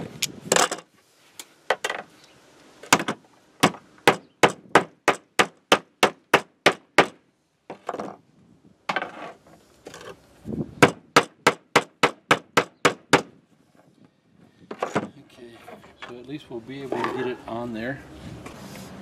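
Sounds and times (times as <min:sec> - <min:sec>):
hammering on copper wire: 0:03.0 - 0:07.2, 0:10.8 - 0:13.3.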